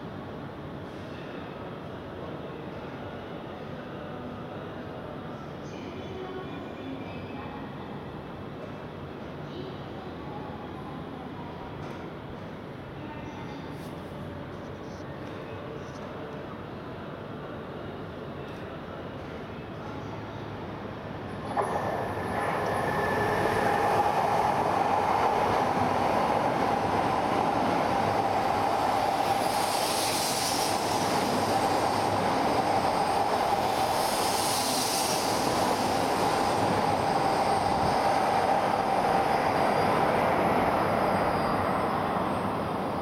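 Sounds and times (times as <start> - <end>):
train wheels and air rushing: 20.8 - 43.0.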